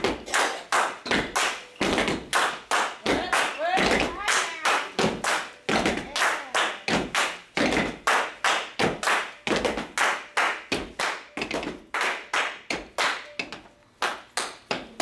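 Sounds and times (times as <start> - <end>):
hands clapping: 0.2 - 1.7, 2.3 - 13.4, 14.0 - 15.0
men stomping feet: 6.9 - 8.1.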